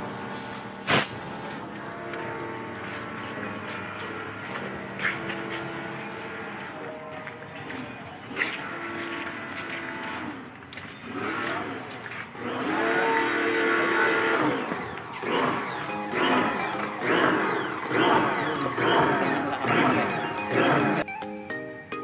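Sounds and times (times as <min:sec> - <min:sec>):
background music: 0:13.4 - 0:22.0.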